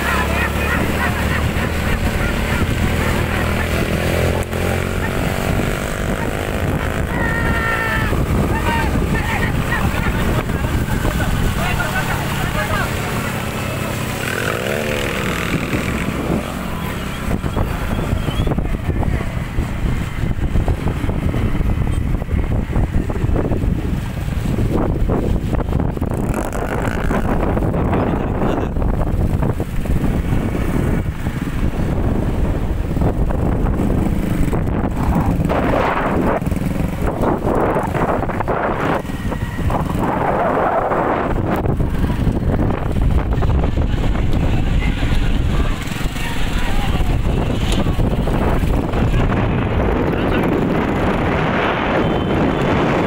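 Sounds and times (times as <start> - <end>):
motorcycle engines running: 0.0 - 53.0
wind rumble on microphone: 0.0 - 53.0.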